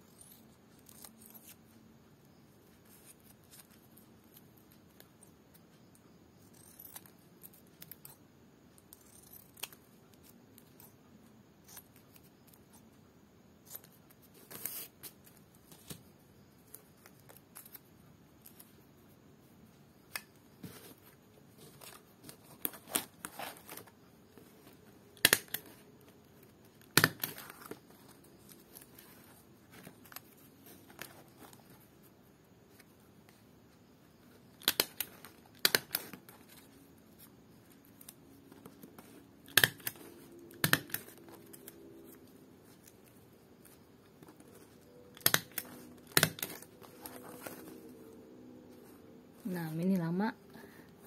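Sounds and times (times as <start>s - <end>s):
hand stapler snapping shut: 39.5s - 41.0s.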